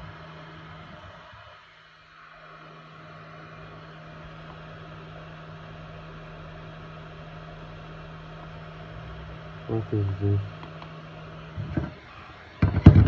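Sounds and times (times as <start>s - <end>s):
hot air gun fan hissing: 0.0s - 13.0s
low electrical hum: 0.0s - 13.0s.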